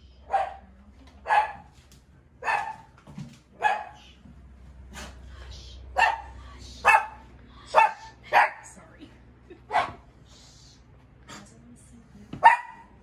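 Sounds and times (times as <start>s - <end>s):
dog barking: 0.3s - 1.8s, 2.4s - 3.0s, 3.6s - 4.1s, 6.0s - 8.7s, 9.7s - 10.1s, 12.4s - 13.0s.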